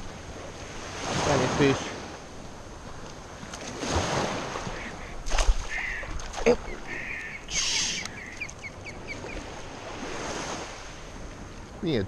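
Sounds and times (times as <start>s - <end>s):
water splashing in surf: 0.0s - 11.8s
short high ticks: 7.9s - 8.6s.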